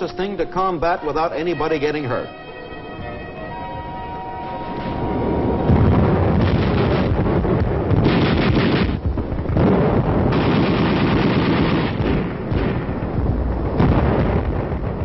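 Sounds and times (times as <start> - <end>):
recorded gunfire and artillery: 4.7 - 15.0.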